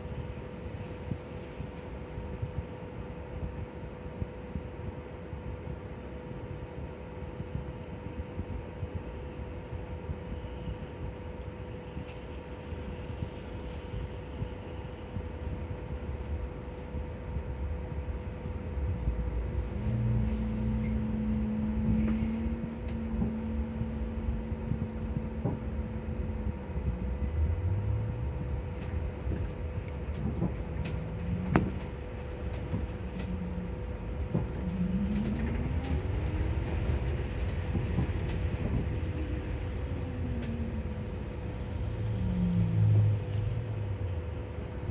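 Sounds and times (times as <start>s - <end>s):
low road rumble: 0.0s - 44.9s
steady hum: 0.0s - 44.9s
electric bus motor whining: 17.6s - 44.9s.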